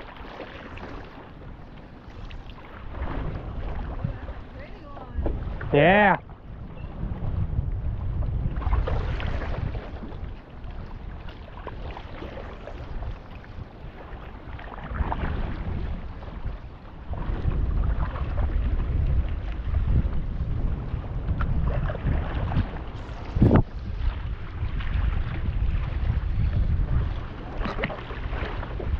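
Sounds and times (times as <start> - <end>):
water splashing and lapping: 0.0 - 28.9
wind buffeting microphone: 0.0 - 28.9.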